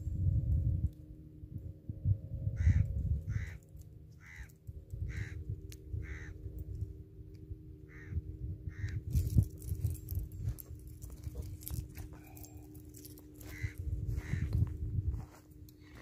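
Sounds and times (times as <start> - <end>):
wind rumble on microphone: 0.0 - 16.0
crow cawing: 2.6 - 6.4, 7.9 - 9.0, 13.4 - 14.6.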